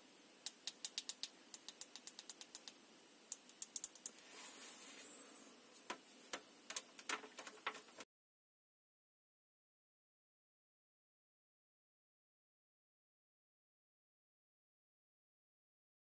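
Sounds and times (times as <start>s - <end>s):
small plastic clicks: 0.4s - 4.2s, 5.9s - 8.0s
rustle: 4.1s - 6.4s.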